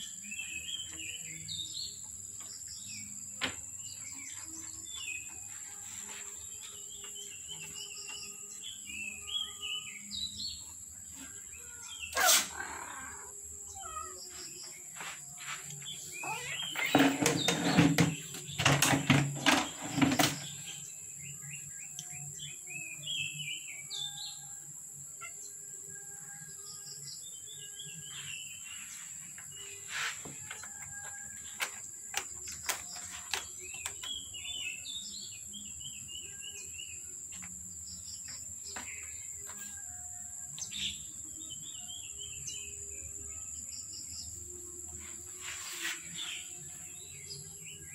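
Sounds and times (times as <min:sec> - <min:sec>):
small birds chirping: 0:00.0 - 0:24.5, 0:26.6 - 0:47.9
rustling and knocking: 0:16.7 - 0:20.6.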